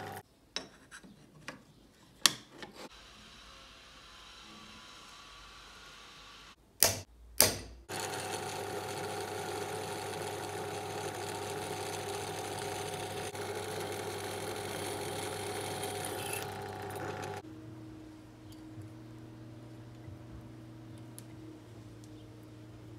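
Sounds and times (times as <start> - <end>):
drill press drilling metal: 7.9 - 17.4.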